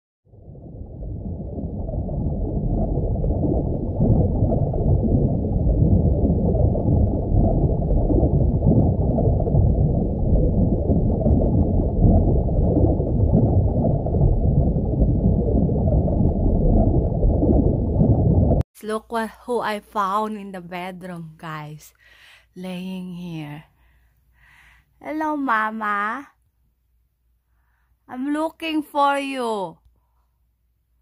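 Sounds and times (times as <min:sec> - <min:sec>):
muffled underwater water rush: 0:00.3 - 0:18.6.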